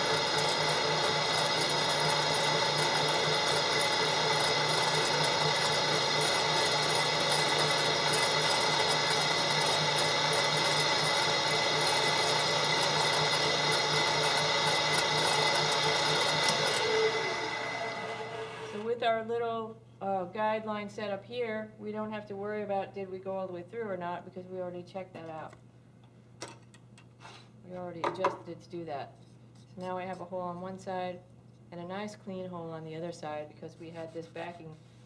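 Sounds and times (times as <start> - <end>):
drill bit boring through wood: 0.0 - 18.8
drill press motor whine: 0.0 - 18.8.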